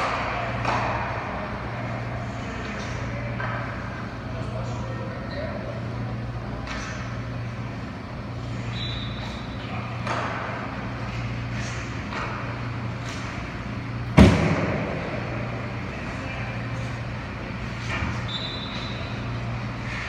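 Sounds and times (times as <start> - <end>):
hockey stick and puck clacks: 0.0 - 4.0, 6.6 - 7.2, 8.6 - 15.0
steady low hum: 0.0 - 20.0
loud sharp bang: 14.2 - 15.3.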